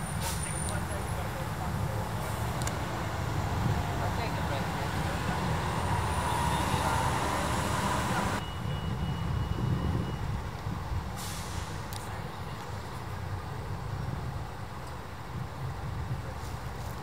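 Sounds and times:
street traffic rumble: 0:00.0 - 0:17.0
hiss: 0:11.2 - 0:11.9.

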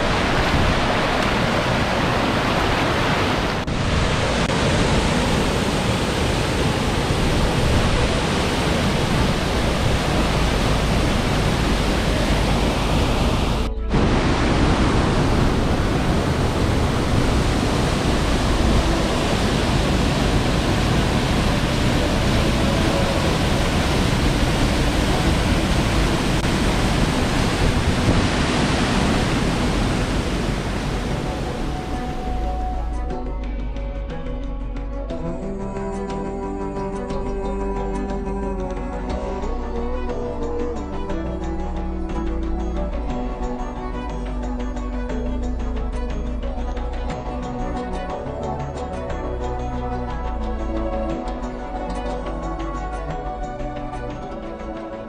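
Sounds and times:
mountain stream and waterfall rushing: 0:00.0 - 0:33.0.

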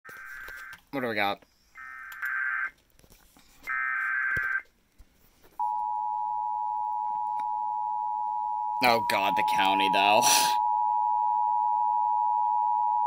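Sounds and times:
steady single-pitch attention tone: 0:05.6 - 0:13.0
digital data tone bursts: 0:08.8 - 0:10.6.

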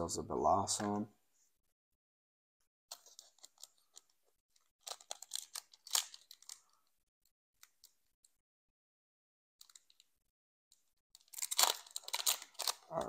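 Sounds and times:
foil wrapper crinkling and tearing: 0:04.8 - 0:06.7, 0:11.2 - 0:13.0.

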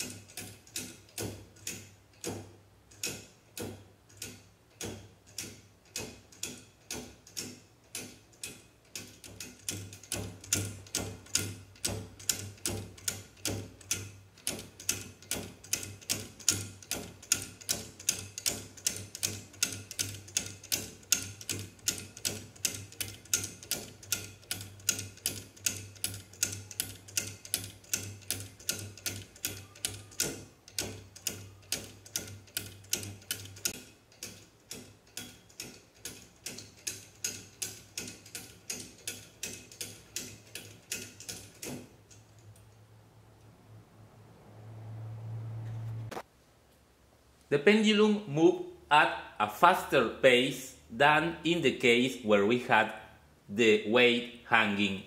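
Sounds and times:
pendulum escapement ticking: 0:00.0 - 0:42.5.

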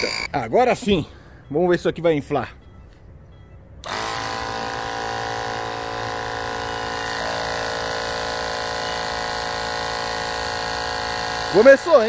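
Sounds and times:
air compressor motor hum: 0:00.0 - 0:00.3, 0:03.8 - 0:12.0.

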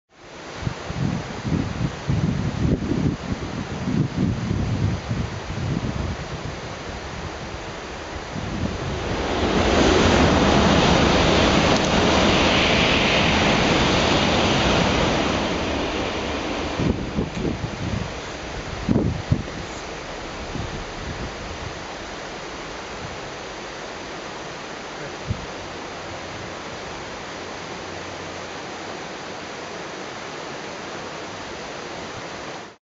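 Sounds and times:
heavy rain hiss: 0:00.1 - 0:32.8
train rushing past: 0:06.2 - 0:28.4.

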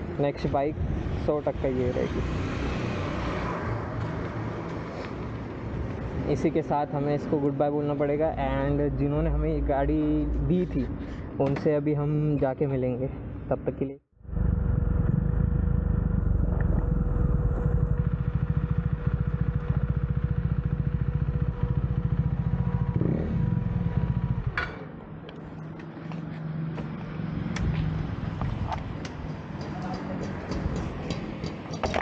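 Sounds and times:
motorcycle engine running: 0:14.3 - 0:24.8.

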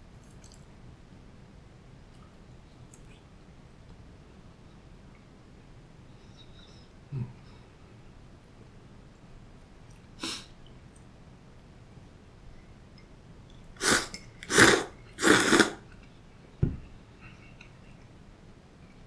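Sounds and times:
noodles being slurped: 0:13.8 - 0:15.9
dull knock: 0:16.6 - 0:16.8.

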